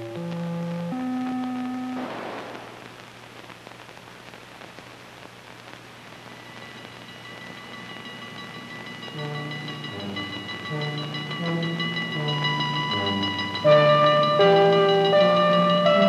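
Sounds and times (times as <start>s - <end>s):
low hiss: 0.0s - 16.0s
high sustained chord: 6.6s - 16.0s
held synthesizer notes: 8.3s - 16.0s.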